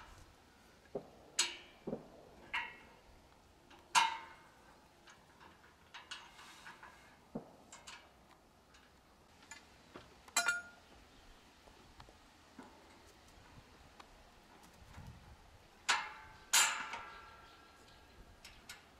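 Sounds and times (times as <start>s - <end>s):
ringing metal clank: 10.4s - 10.8s.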